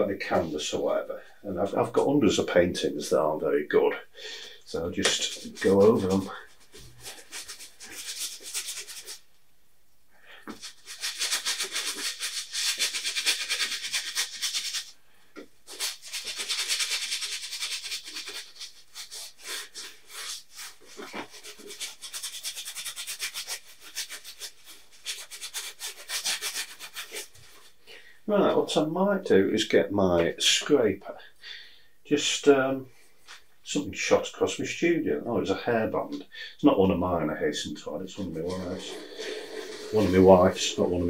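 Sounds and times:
paintbrush scrubbing on canvas: 0:04.9 - 0:09.2, 0:10.5 - 0:15.0, 0:15.7 - 0:27.8, 0:38.2 - 0:41.0.

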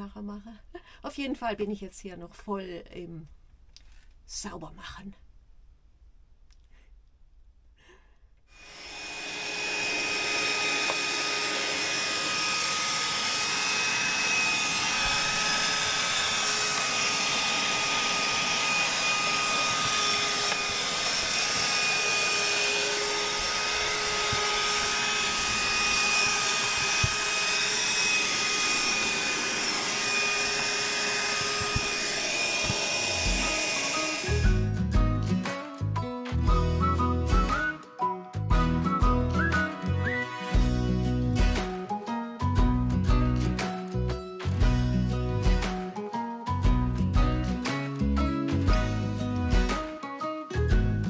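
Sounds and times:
handheld vacuum cleaner whining: 0:08.6 - 0:35.0.

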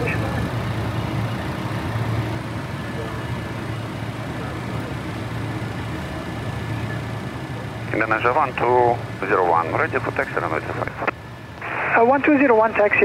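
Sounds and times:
jet engines idling: 0:00.0 - 0:13.0.

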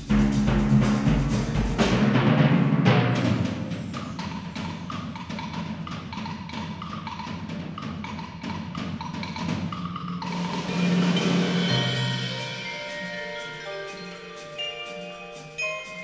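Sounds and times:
percussion ensemble playing: 0:00.0 - 0:16.0
ringing sustained notes: 0:10.3 - 0:16.0.

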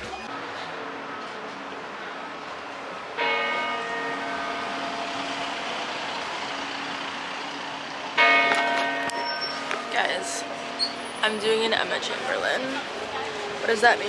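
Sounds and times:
city street traffic: 0:00.0 - 0:14.0
church bell ringing: 0:03.1 - 0:11.8.

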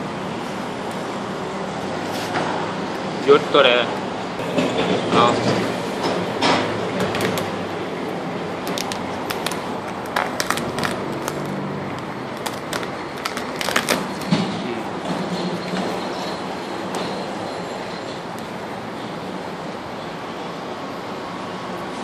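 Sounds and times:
steady background noise: 0:00.0 - 0:22.0
vinyl film crinkling: 0:08.7 - 0:14.3.

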